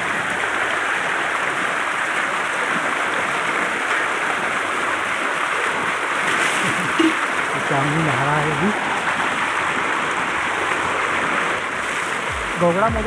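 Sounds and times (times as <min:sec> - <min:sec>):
water gushing and splashing: 0:00.0 - 0:13.0.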